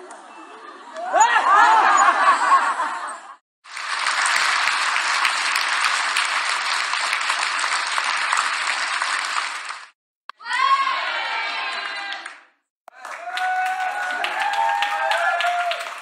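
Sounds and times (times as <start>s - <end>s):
crowd applauding: 3.6s - 10.0s, 11.3s - 16.0s.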